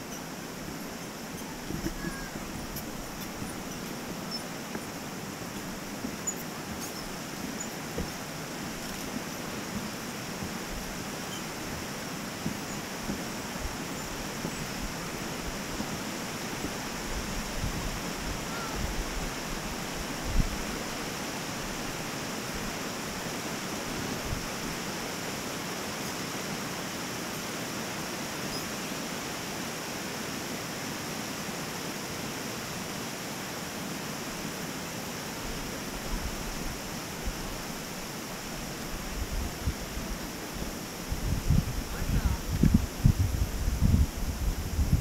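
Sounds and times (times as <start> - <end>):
creek water rushing: 0.0 - 45.0.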